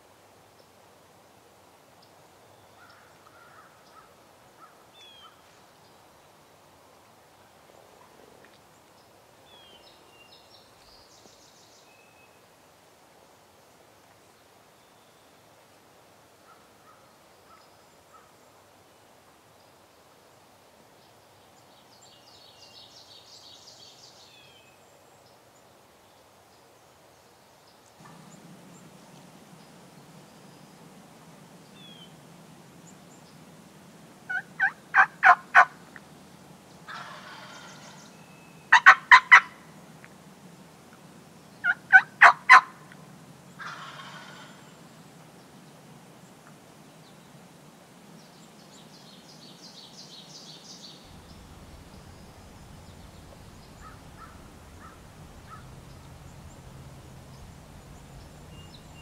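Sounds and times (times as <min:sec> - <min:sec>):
wild turkey gobbling: 0:34.3 - 0:36.1, 0:36.9 - 0:38.0, 0:38.7 - 0:39.6, 0:41.6 - 0:42.9, 0:43.6 - 0:44.6, 0:51.1 - 0:59.0.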